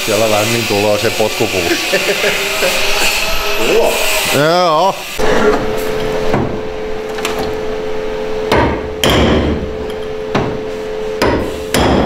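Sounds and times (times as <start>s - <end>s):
steady hum: 0.0s - 12.0s
sledgehammer striking steel pipe: 8.5s - 10.6s, 11.2s - 12.0s.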